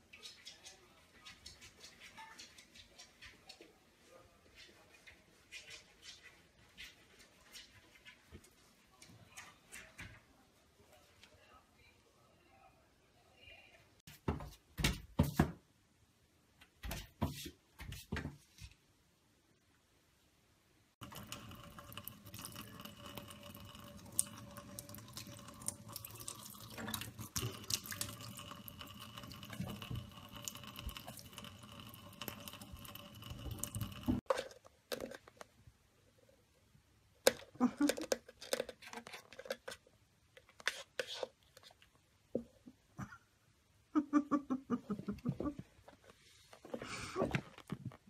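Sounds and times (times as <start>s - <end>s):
tap water running into sink: 21.0s - 34.2s.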